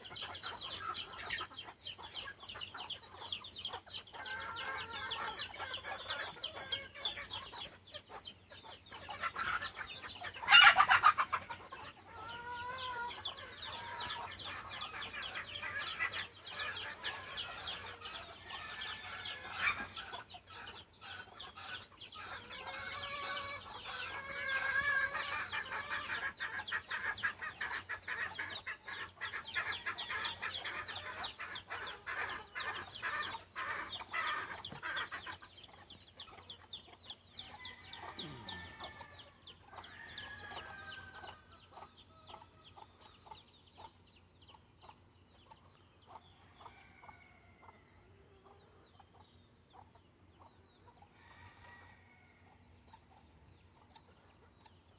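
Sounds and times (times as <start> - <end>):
chickens clucking: 0.0 - 54.9
roosters crowing: 9.1 - 35.2, 37.4 - 42.8, 46.4 - 48.4, 51.1 - 52.8.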